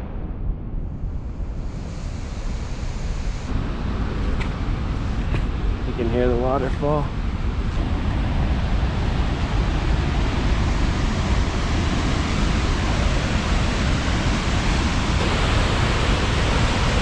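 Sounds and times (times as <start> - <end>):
waterfall rushing: 3.5 - 17.0.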